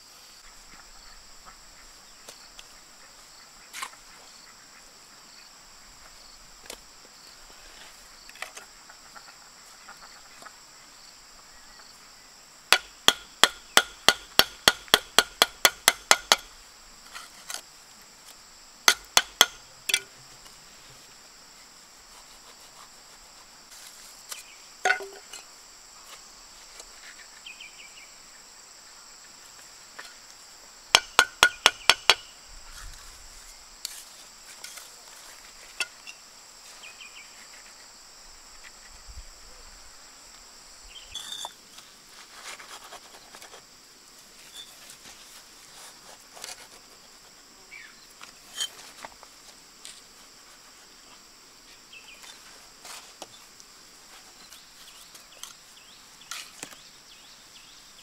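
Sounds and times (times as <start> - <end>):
high insect drone: 0.0 - 58.0
bricks tapped into mortar: 18.9 - 20.1, 31.0 - 32.2.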